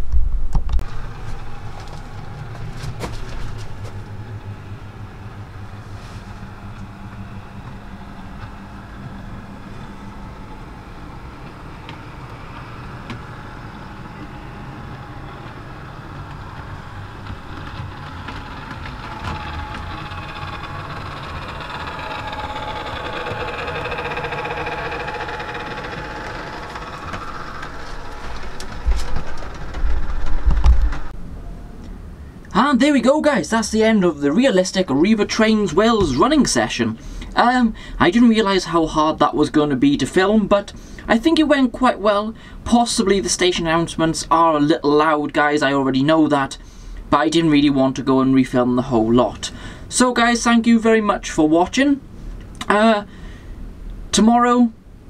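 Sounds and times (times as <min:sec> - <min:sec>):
model train diesel engine sound: 0:00.8 - 0:31.2, 0:32.5 - 0:55.0.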